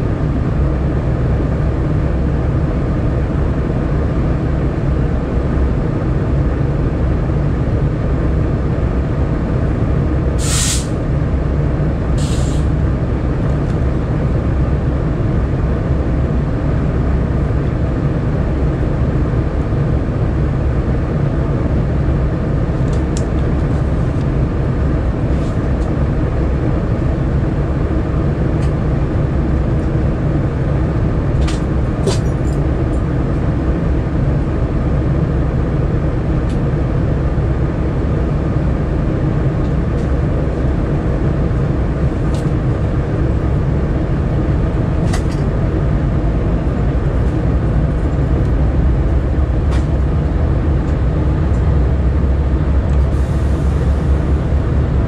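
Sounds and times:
air hisses: 10.4 - 11.0, 12.2 - 12.7
locomotive engines idling: 38.9 - 55.0.

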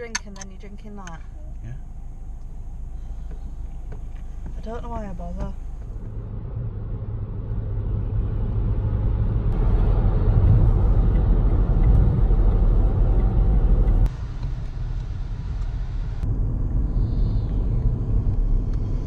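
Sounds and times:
road and engine noise in car: 0.0 - 19.0.

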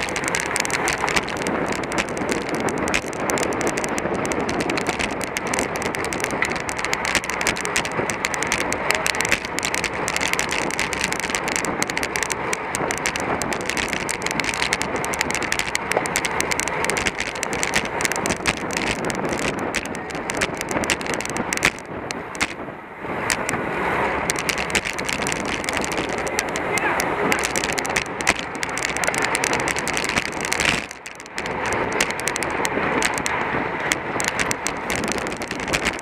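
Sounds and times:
bicycle tyres and drivetrain: 0.0 - 36.0
wind on microphone: 0.0 - 36.0.

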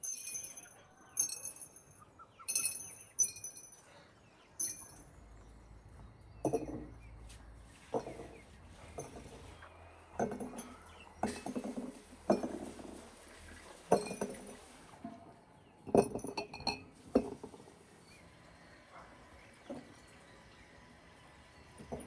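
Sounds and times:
garlic cloves clinking into glass jars: 0.0 - 4.0, 4.6 - 5.2, 10.2 - 13.0, 13.8 - 14.7, 15.9 - 17.6.

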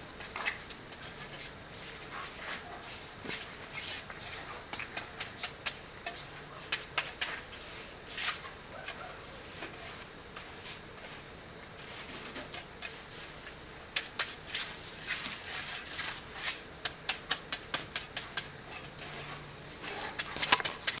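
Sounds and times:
trowel scraping wet concrete: 0.3 - 8.5, 9.6 - 21.0.

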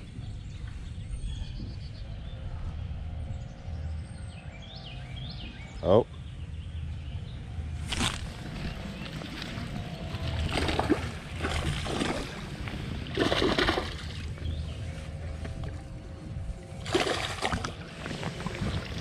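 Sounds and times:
steady low rumble: 0.0 - 19.0
water splashing against boat: 7.9 - 19.0.

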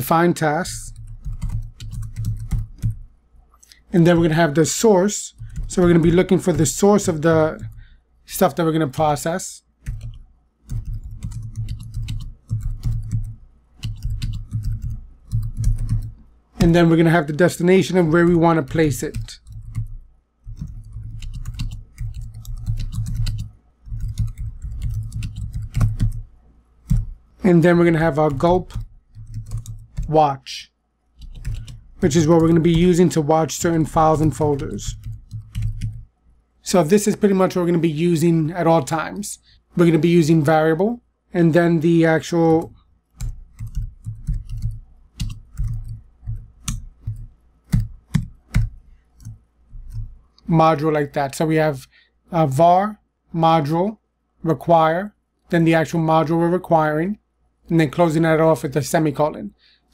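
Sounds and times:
keyboard typing: 0.6 - 3.1, 3.7 - 7.9, 9.0 - 17.2, 17.8 - 30.2, 31.2 - 36.1, 42.4 - 50.4.

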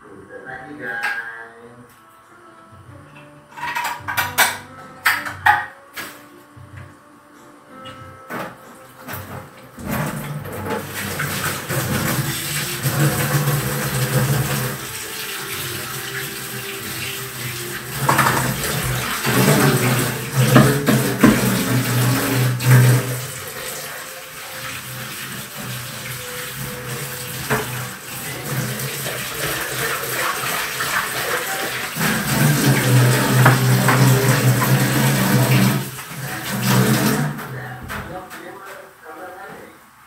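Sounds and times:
dishes clinking and knocking: 3.2 - 5.8, 18.0 - 22.9, 32.0 - 35.8
tap water running into sink: 9.1 - 38.0.

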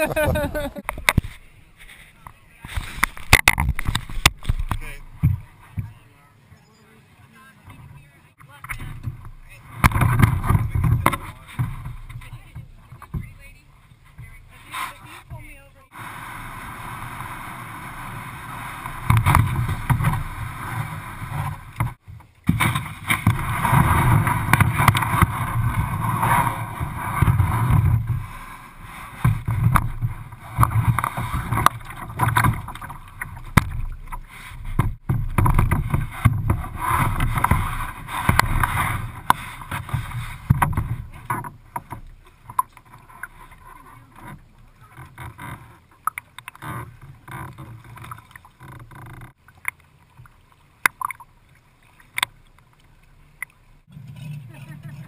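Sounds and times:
kayak hull knocks and scrapes: 0.0 - 6.1, 7.6 - 55.0.

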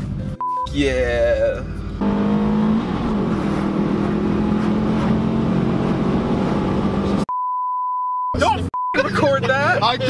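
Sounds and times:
car engine at high revs: 1.8 - 7.3.

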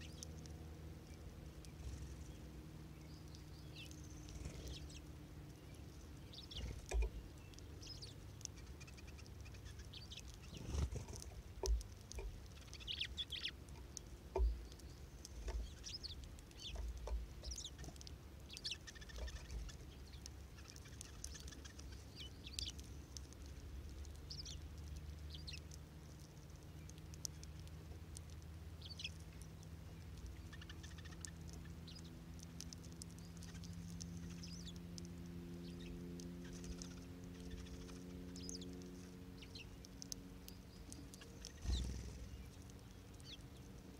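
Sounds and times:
finches chirping: 0.0 - 25.8, 26.6 - 43.9
faint low hum: 0.0 - 43.9
soft low thumps and taps: 6.5 - 7.6, 10.7 - 12.6, 13.7 - 18.0.

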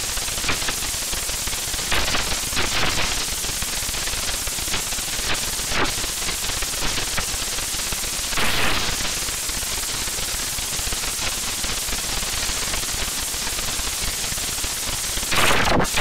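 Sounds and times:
crackling static with pops: 1.8 - 3.3, 4.7 - 7.4, 8.2 - 9.3, 15.2 - 16.0.

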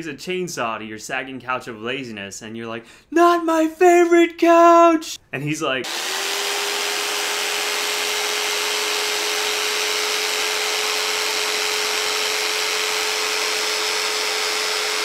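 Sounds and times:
electric jigsaw running: 5.9 - 15.0.

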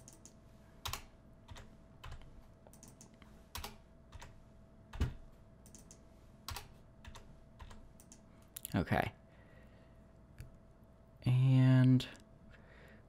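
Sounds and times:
keyboard keystrokes: 0.0 - 4.3, 4.9 - 8.2
faint steady hum: 0.0 - 13.0.

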